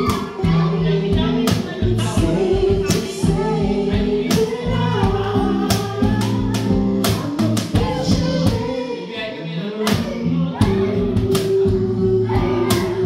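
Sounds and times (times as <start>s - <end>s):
cajon hits: 0.0s - 8.8s
acoustic guitar: 0.0s - 13.0s
women singing: 0.0s - 13.0s.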